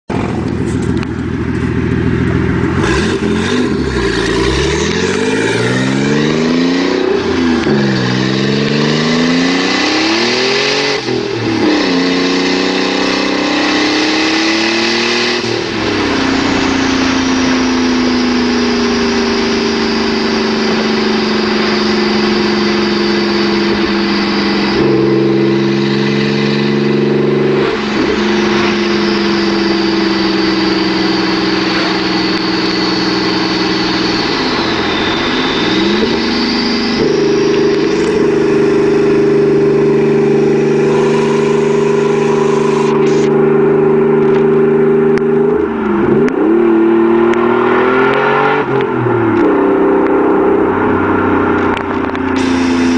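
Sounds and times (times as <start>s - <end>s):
car engine revving: 0.1s - 52.9s
turbo whistle: 3.7s - 43.3s.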